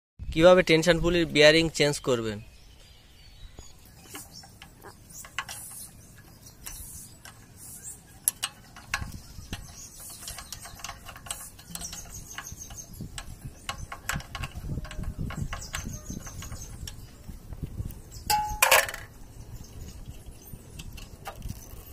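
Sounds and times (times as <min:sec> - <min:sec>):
spanner clicking on metal bolt: 0:04.1 - 0:17.1.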